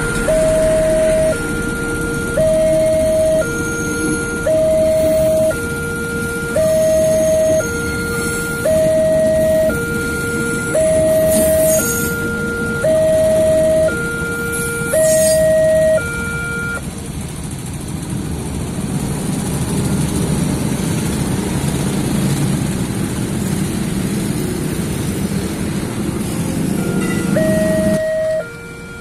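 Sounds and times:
two-tone crossing alarm: 0.0 - 16.8, 26.4 - 29.0
motorcycle engines idling: 0.0 - 29.0
passing train rumble: 0.0 - 29.0.

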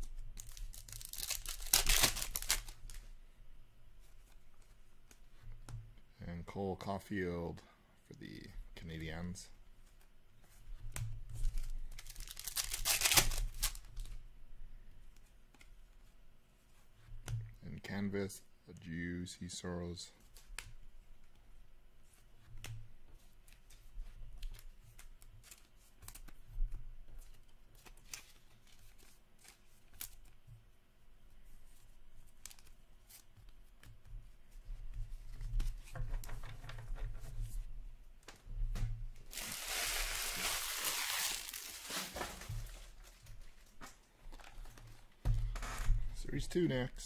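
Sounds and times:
paper tearing and crinkling: 0.4 - 3.0, 11.9 - 13.9, 39.3 - 43.2
trading cards flipped by hand: 0.4 - 3.0, 31.7 - 34.0, 39.3 - 45.0.

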